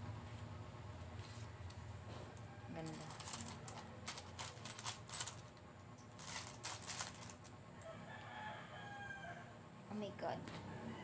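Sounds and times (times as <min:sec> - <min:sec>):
coins clinking in a bowl: 0:02.8 - 0:05.5, 0:06.2 - 0:07.4.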